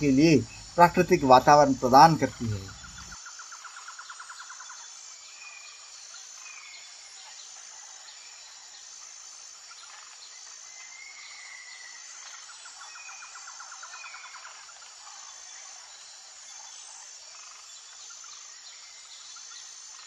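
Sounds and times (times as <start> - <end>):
bird chirps: 0.0 - 3.2
high insect buzz: 0.0 - 4.1
insect chirring trill: 0.0 - 19.9.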